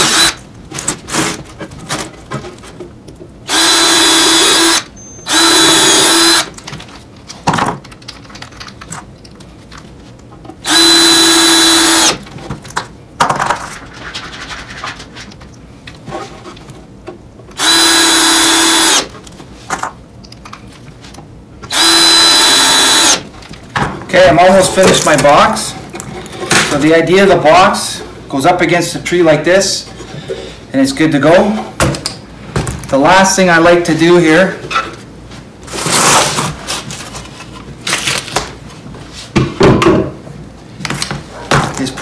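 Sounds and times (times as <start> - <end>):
cordless drill drilling into wood: 0.0 - 0.4, 3.5 - 6.5, 10.6 - 12.2, 17.6 - 19.1, 21.7 - 23.2.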